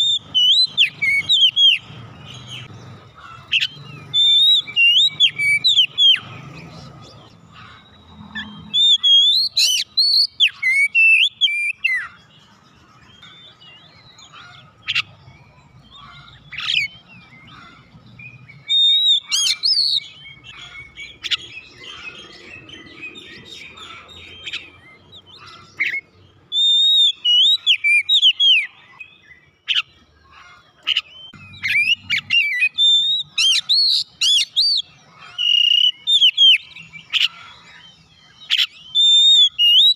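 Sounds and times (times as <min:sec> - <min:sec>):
bird singing whistled phrases: 0:00.0 - 0:02.6, 0:03.6 - 0:06.3, 0:08.4 - 0:12.2, 0:18.2 - 0:21.7, 0:25.8 - 0:29.9, 0:31.0 - 0:37.3, 0:38.4 - 0:39.9.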